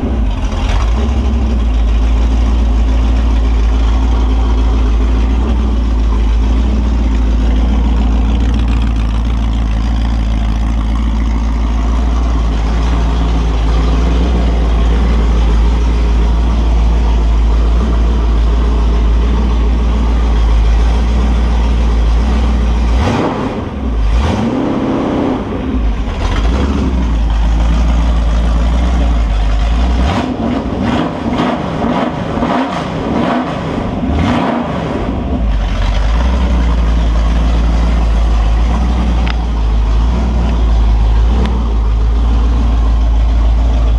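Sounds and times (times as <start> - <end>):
engine revving through open headers: 2.8 - 43.9.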